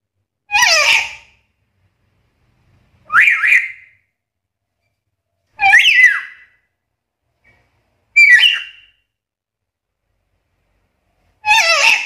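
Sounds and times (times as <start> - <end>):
parrot whistled calls: 3.1 - 4.0, 5.6 - 6.5, 8.2 - 8.9.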